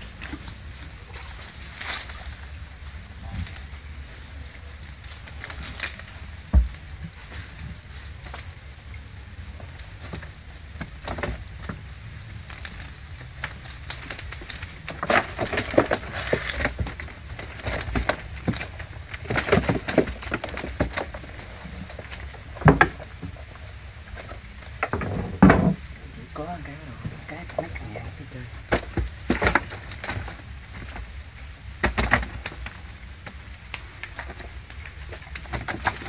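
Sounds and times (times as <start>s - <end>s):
net rustling and clattering: 9.4s - 28.0s, 28.6s - 36.0s
steady high hiss: 20.6s - 36.0s.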